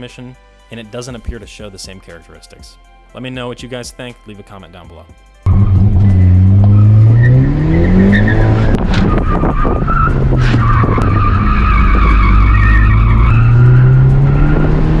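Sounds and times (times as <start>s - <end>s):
car engine revving: 5.5s - 15.0s
tyres squealing: 6.0s - 15.0s.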